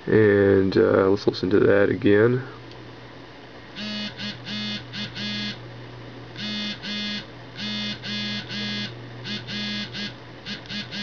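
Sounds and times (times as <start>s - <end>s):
phone vibration buzzing pulses: 3.7s - 5.7s, 6.3s - 11.0s.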